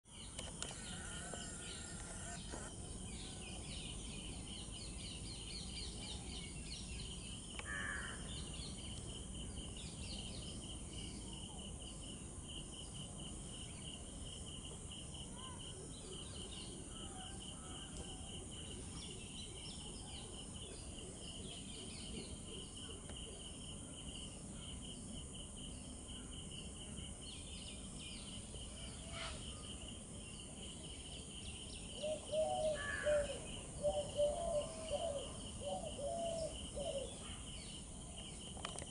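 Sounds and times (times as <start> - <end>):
small birds chirping: 0.1 - 38.9
insect trilling: 0.5 - 2.8
low-pitched bird calls: 32.0 - 37.2.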